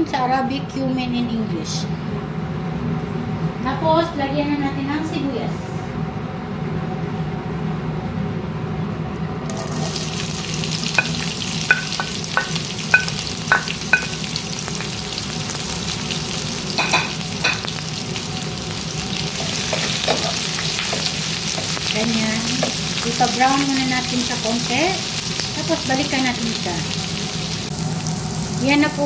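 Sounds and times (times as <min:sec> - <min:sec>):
onions sizzling in hot oil: 0:09.5 - 0:29.0.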